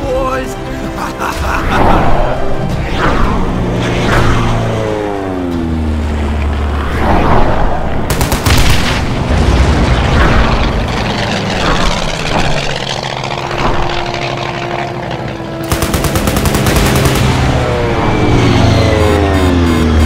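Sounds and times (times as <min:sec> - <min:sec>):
aircraft engine sound effects: 0:00.0 - 0:20.0
machine-gun fire: 0:08.1 - 0:09.2, 0:15.6 - 0:17.7.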